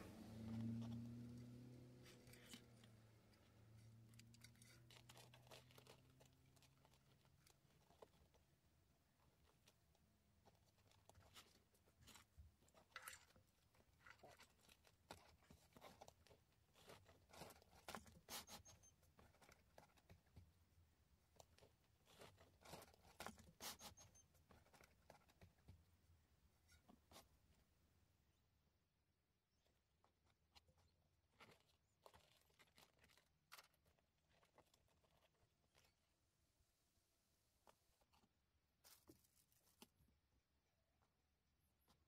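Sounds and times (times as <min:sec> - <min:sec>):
faint clicks and rustles of wiring: 0:00.1 - 0:26.0, 0:29.6 - 0:36.3.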